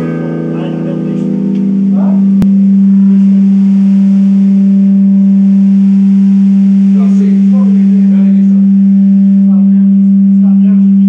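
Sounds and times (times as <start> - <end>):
steady low electronic tone: 0.0 - 11.0.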